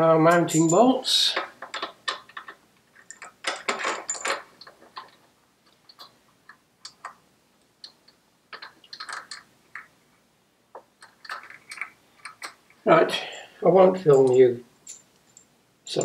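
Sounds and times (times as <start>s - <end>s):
metallic clicks of bolts handled: 1.4s - 7.2s, 7.8s - 9.9s, 10.8s - 12.6s, 14.1s - 16.0s.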